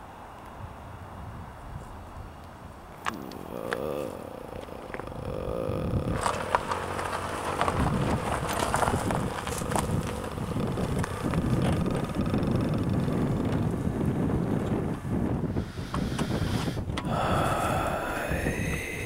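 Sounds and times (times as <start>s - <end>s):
wind on microphone: 0.6s - 19.0s
car engine running: 4.2s - 15.1s.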